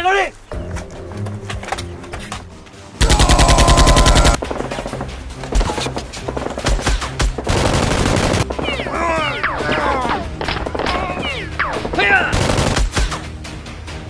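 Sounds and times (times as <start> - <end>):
background music: 0.0 - 14.0
machine-gun fire: 3.0 - 4.4, 6.3 - 8.6, 12.3 - 13.1.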